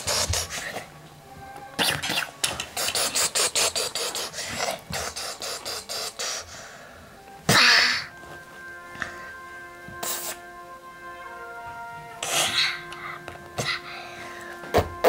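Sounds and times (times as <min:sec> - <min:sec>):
child making explosion hiss: 0:01.8 - 0:06.6, 0:10.0 - 0:10.4.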